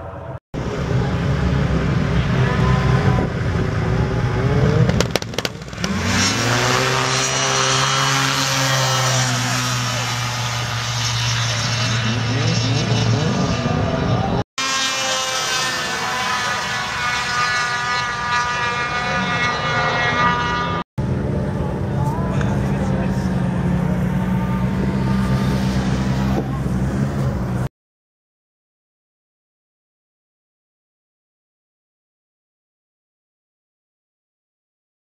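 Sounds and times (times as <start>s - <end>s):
snowmobile engines revving: 0.6s - 27.7s.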